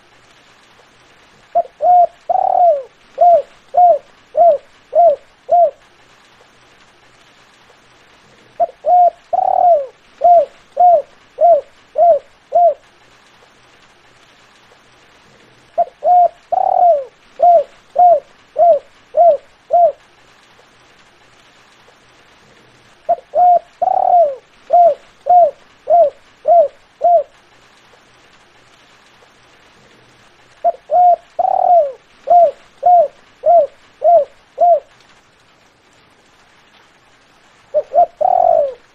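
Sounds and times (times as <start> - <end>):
dove cooing: 1.6 - 5.8, 8.6 - 12.9, 15.8 - 20.0, 23.1 - 27.4, 30.6 - 34.9, 37.7 - 38.9.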